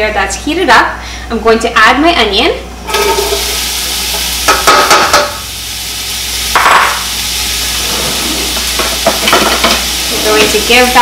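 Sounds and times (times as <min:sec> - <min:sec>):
onion sizzling in hot oil: 0:02.8 - 0:11.0.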